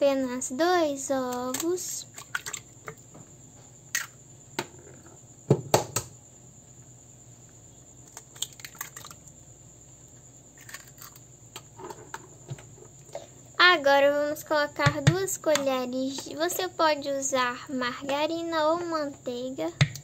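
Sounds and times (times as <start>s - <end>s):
eggs cracking against a jar: 3.9s - 4.2s, 8.0s - 9.4s, 10.6s - 11.8s
eggshell clicks: 3.9s - 4.2s.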